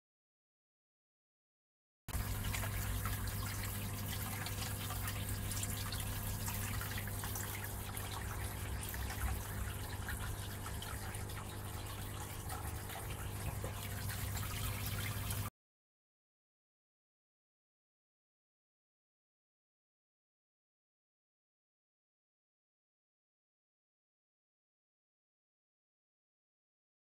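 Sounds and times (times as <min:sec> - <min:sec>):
pump hum: 0:02.1 - 0:15.5
water trickling into fish tank: 0:02.1 - 0:15.5.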